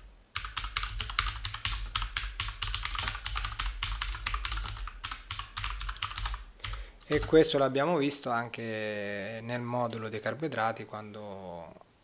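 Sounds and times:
rapid typing on keyboard: 0.4s - 7.5s.

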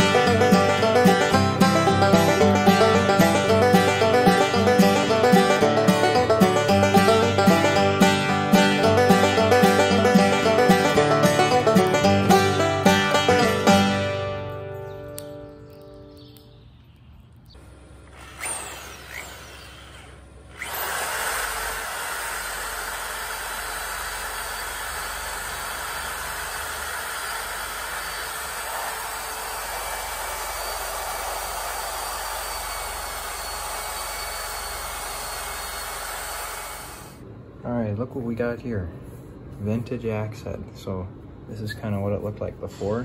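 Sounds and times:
drill wire brush scratching metal: 18.0s - 37.2s.

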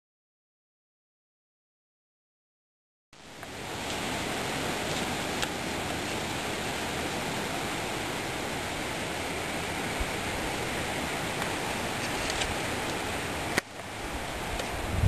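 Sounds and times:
outdoor background hiss: 3.2s - 15.0s.

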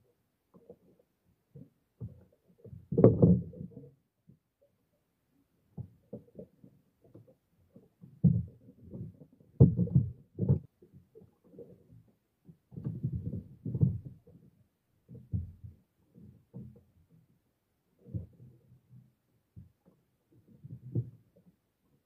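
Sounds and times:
muffled thumps of fish being clubbed: 8.1s - 11.7s, 12.7s - 14.4s, 15.1s - 16.8s, 20.6s - 21.5s.

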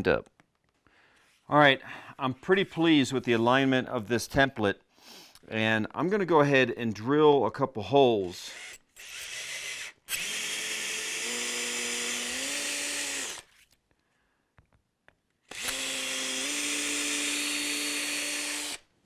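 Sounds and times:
cordless drill boring into wood: 8.4s - 13.6s, 15.5s - 18.9s.

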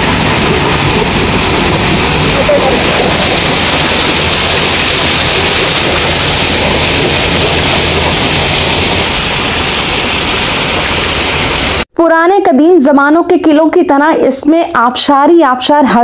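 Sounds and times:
low hum: 0.0s - 11.8s
waterfall splashing: 0.0s - 11.9s.

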